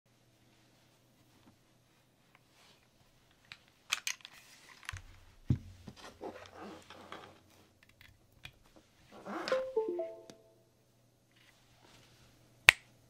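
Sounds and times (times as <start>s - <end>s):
soft rustling: 0.2s - 3.4s.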